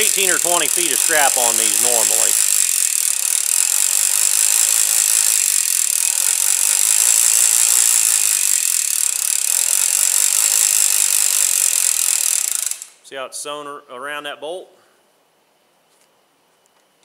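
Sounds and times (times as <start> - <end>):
winch pawl clicking over ratchet: 0.0 - 13.0.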